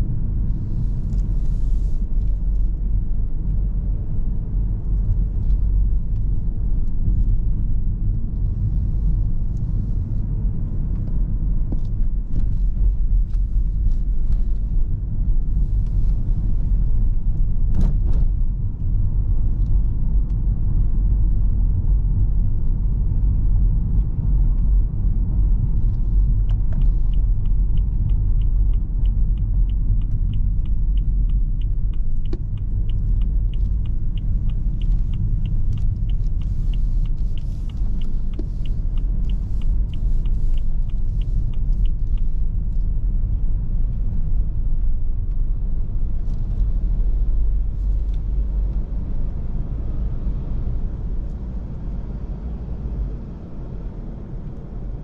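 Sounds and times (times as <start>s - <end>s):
car engine rumble from inside: 0.0s - 55.0s
turn signal ticking: 21.8s - 53.2s.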